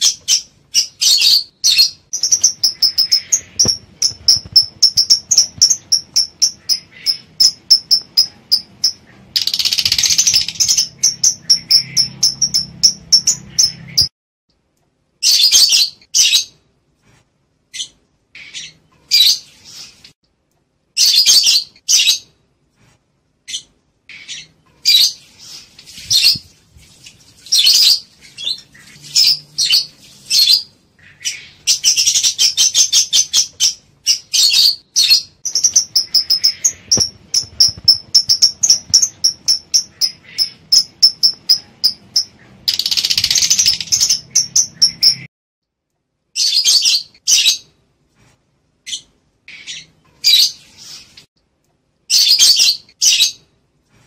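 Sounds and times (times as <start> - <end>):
lovebirds chirping shrilly: 0.0 - 14.1, 23.5 - 45.3, 48.9 - 51.3.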